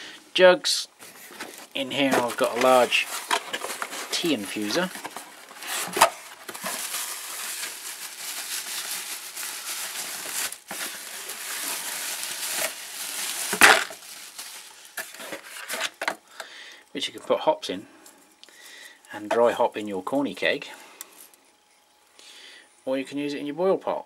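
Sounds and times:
bubble wrap rustling and crinkling: 0:01.0 - 0:16.2.

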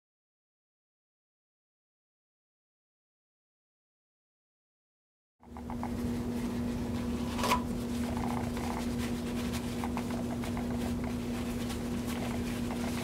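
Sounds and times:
steady low hum: 0:05.4 - 0:13.0
paper towel crinkling: 0:05.7 - 0:13.0.

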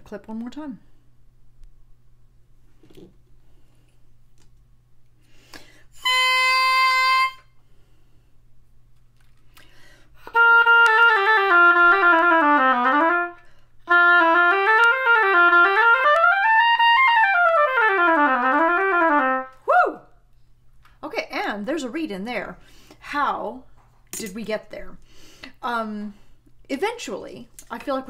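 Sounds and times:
oboe playing: 0:06.0 - 0:07.6, 0:10.2 - 0:19.7.

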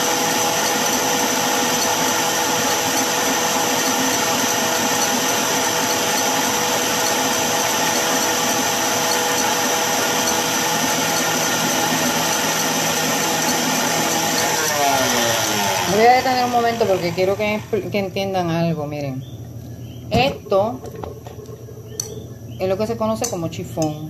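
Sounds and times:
stand mixer whisking egg whites: 0:00.0 - 0:18.2.

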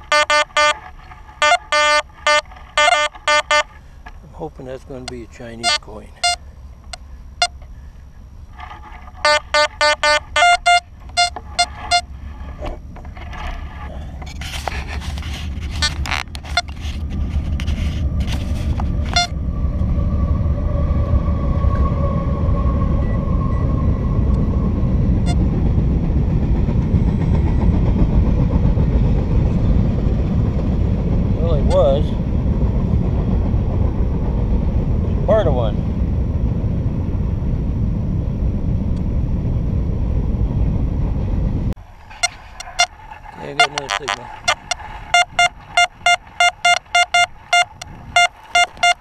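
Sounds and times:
metal detector beeps: 0:00.0 - 0:03.8, 0:05.1 - 0:07.6, 0:09.2 - 0:12.1, 0:19.1 - 0:19.3, 0:42.1 - 0:49.0
steady low rumble: 0:00.0 - 0:49.0
shovel scraping dry dirt: 0:13.3 - 0:18.8.

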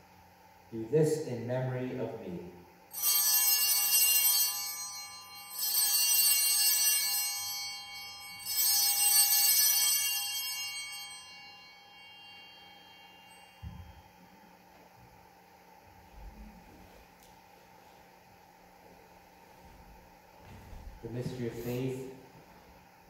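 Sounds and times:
altar bells ringing: 0:02.9 - 0:14.7.

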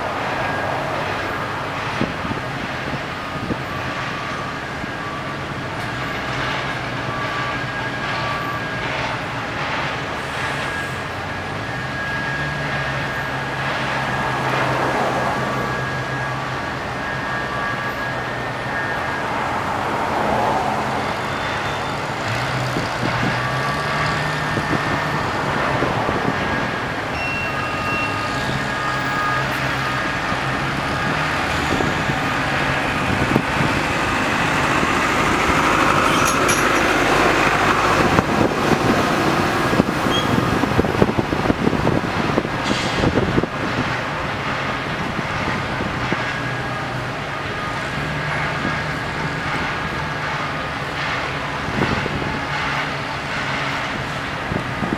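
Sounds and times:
crane engine running: 0:00.0 - 0:54.9
rattling and clanking: 0:35.6 - 0:37.4.

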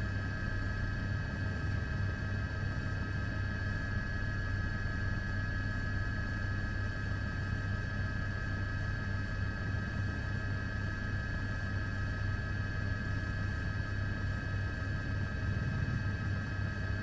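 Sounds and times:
aircraft engine drone: 0:08.5 - 0:17.0.

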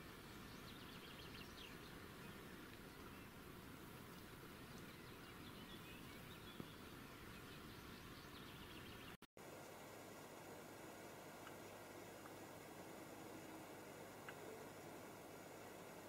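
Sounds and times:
faint outdoor hiss: 0:00.0 - 0:16.0
small tick: 0:14.2 - 0:14.5.

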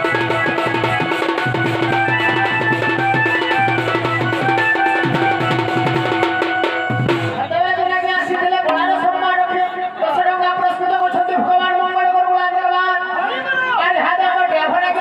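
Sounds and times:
hand drum beaten in quick rhythm: 0:00.0 - 0:07.4
melody instrument playing tune: 0:00.0 - 0:08.0.

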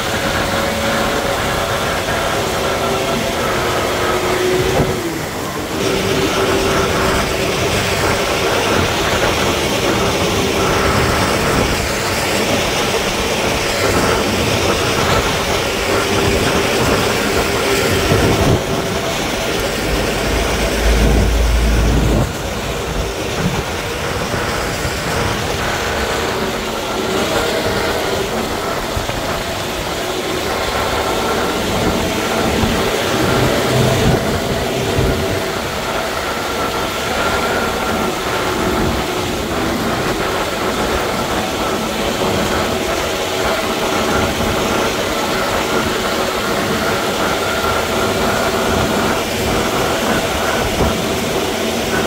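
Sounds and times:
diesel machinery running: 0:00.0 - 0:52.0
deep low rumble: 0:17.1 - 0:25.5.

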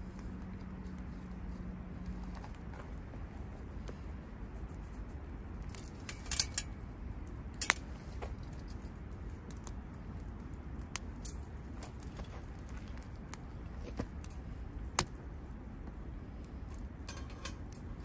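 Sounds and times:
wood fire crackling and popping: 0:00.0 - 0:18.0
metal grill clinking: 0:05.7 - 0:06.8, 0:17.0 - 0:18.0.

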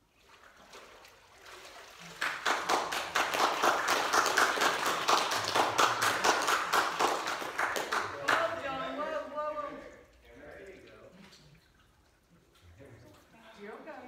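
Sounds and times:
congregation applauding: 0:02.1 - 0:09.9.

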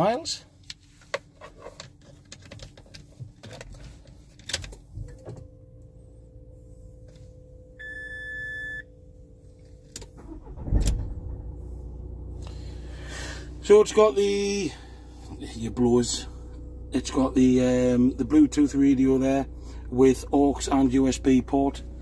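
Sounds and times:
dashboard chime beep: 0:07.8 - 0:08.8
diesel engine cranking and idling: 0:09.0 - 0:22.0.

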